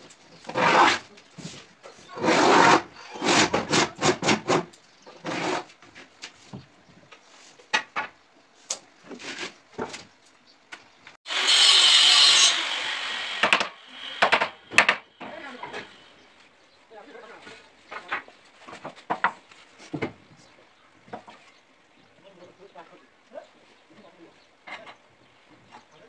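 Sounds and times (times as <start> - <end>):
knocks and scrapes: 0.0 - 10.2, 17.2 - 20.5, 21.1 - 21.6.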